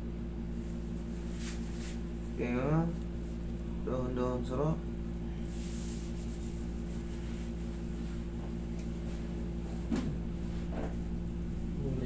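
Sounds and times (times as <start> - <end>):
low machine hum: 0.0 - 12.0
hands rubbing tissue on skin: 0.5 - 2.2, 5.5 - 11.8.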